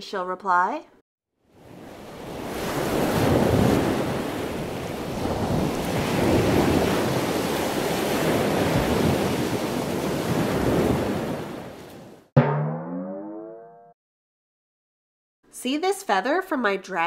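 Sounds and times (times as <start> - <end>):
waves washing on a beach: 1.6 - 12.1.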